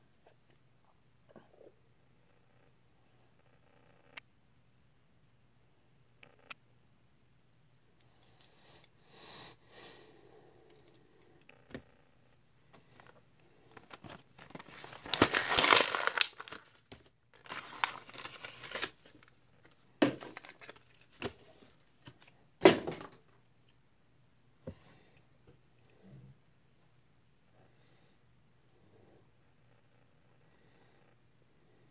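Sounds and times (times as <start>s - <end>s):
packaging crinkling: 13.0s - 21.3s.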